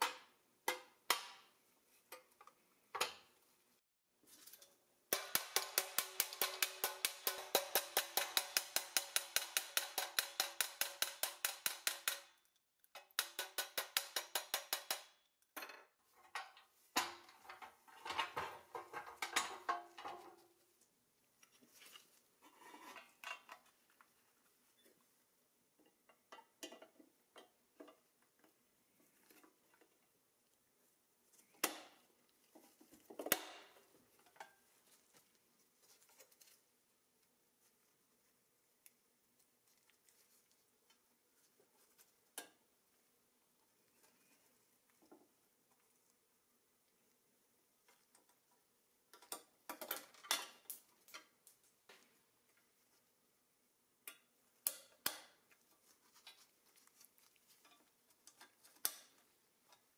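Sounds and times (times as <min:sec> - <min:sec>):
hammer tapping on steel: 0:05.1 - 0:12.3, 0:13.0 - 0:15.2.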